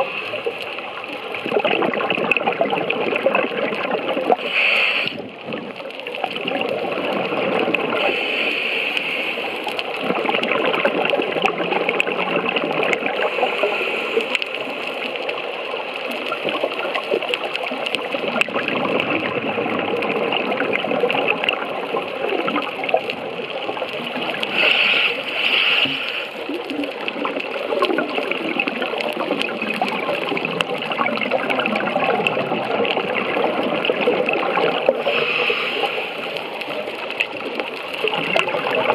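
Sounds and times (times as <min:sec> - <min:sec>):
underwater bubbles gurgling: 0:00.0 - 0:38.9.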